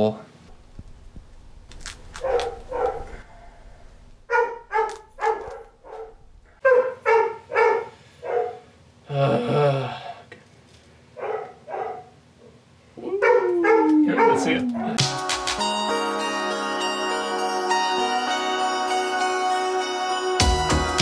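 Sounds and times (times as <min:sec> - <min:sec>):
dog barking: 0:02.2 - 0:03.7, 0:04.3 - 0:08.7, 0:11.2 - 0:12.2, 0:13.2 - 0:14.9.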